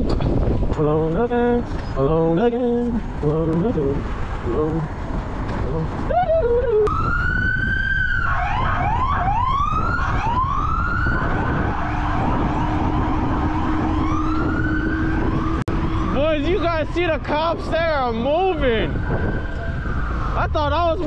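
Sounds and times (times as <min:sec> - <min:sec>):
wind rush on microphone: 0:00.0 - 0:21.0
police siren wailing: 0:06.0 - 0:21.0.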